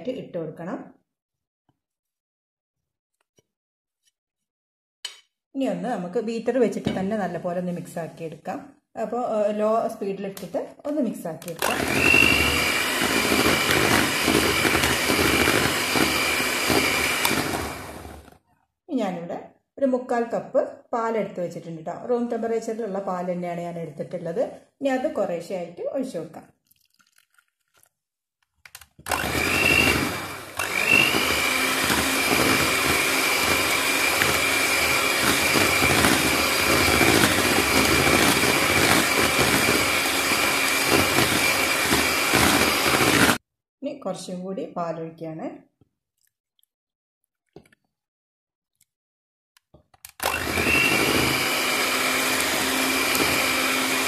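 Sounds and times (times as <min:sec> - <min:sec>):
electric hand mixer running: 0:11.5 - 0:18.4, 0:29.0 - 0:43.4, 0:50.2 - 0:54.0.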